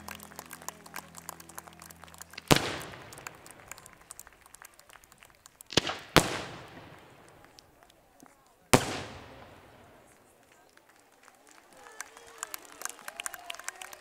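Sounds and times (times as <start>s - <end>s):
music: 0.0s - 3.8s
small crackling pops: 0.0s - 11.3s
fireworks bangs with rolling echo: 2.3s - 4.6s, 5.6s - 7.9s, 8.6s - 10.5s.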